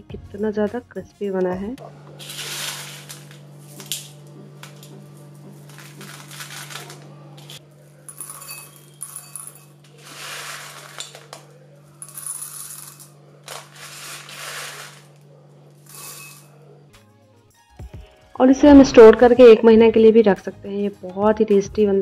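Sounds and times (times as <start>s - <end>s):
chickpeas clattering into glass bowl: 2.2s - 4.9s, 5.7s - 11.4s, 12.0s - 15.2s, 15.8s - 16.5s.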